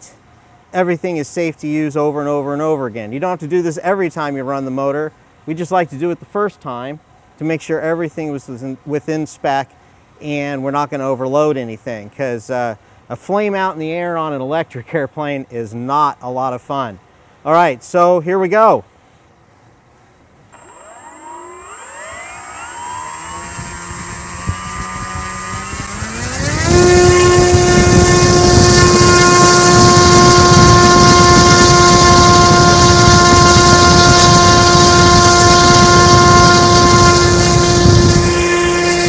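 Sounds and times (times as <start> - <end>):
electric motor whine: 20.6 - 39.0
propeller wash: 20.6 - 39.0.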